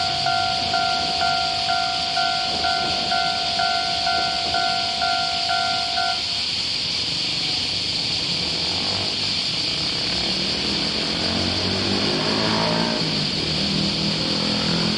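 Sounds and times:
level crossing two-tone alarm bell: 0.0 - 6.4
steady high hiss: 0.0 - 14.9
car and truck engines pulling away: 6.7 - 14.9.

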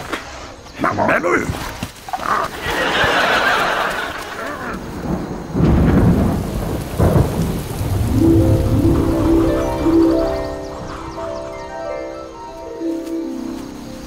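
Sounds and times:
rain falling: 1.4 - 14.0
thunder rumble: 2.5 - 12.3
steady musical notes: 8.0 - 14.0.

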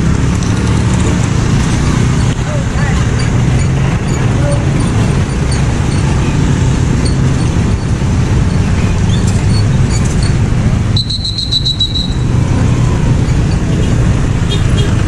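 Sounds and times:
scooter and car engines: 0.0 - 15.0.

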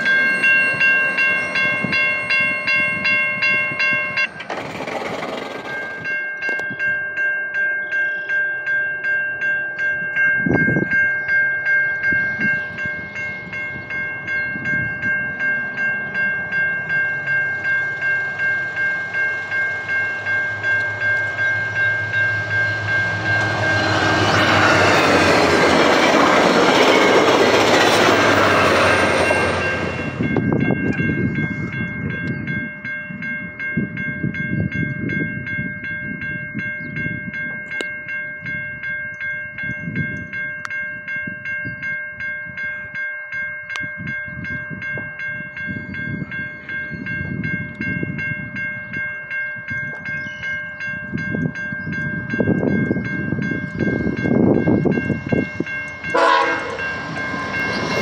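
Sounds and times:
level crossing bell ringing: 0.0 - 4.5, 5.1 - 58.0
diesel locomotive passing: 0.0 - 58.0.

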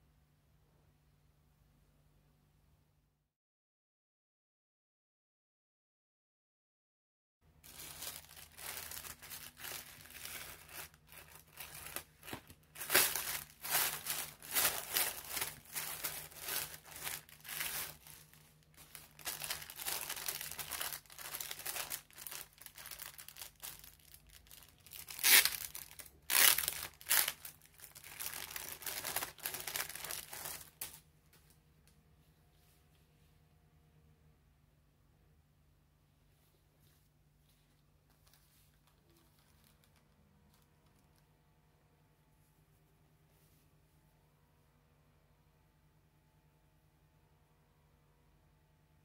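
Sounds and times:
plastic bag crinkling: 7.6 - 31.0, 37.7 - 41.2.

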